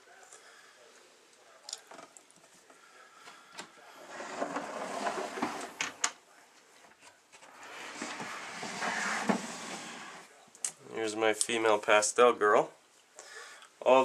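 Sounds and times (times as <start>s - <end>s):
plastic tub scraping on shelf: 4.0s - 5.8s, 7.4s - 10.3s.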